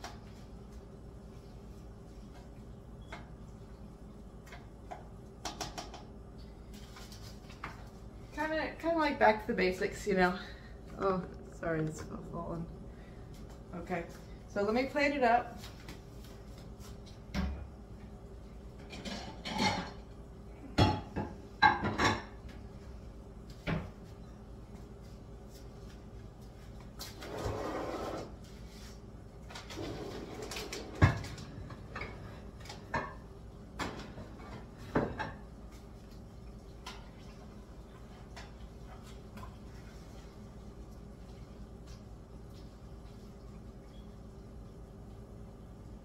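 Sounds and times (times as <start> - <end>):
dishes and utensils clinking: 18.8 - 20.0.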